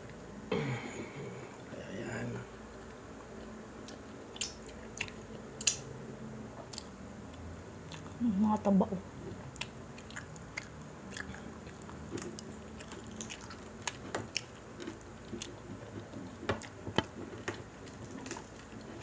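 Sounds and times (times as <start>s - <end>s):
chewing with wet mouth clicks: 2.8s - 5.9s, 6.6s - 8.2s, 9.3s - 19.0s.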